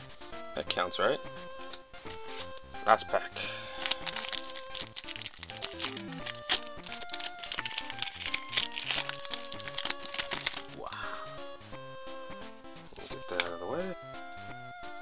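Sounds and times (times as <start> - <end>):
background music with held notes: 0.0 - 15.0
foil wrapper crinkling: 2.1 - 2.8, 3.6 - 10.8, 12.8 - 13.6.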